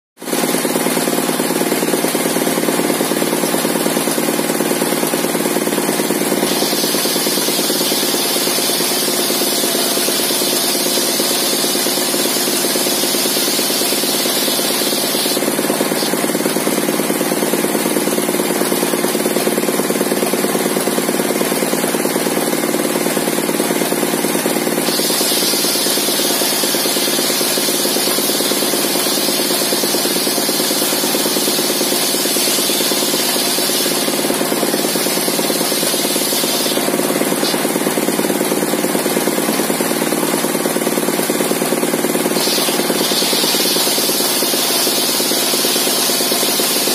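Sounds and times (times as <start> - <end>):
stationary engine running: 0.2 - 46.9
saw blade ripping a board: 24.9 - 37.8.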